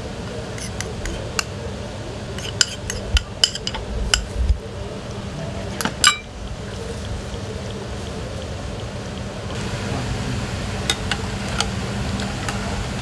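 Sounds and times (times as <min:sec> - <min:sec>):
kitchen background noise: 0:00.0 - 0:13.0
metal ladle clinking ceramic bowls: 0:05.8 - 0:06.3.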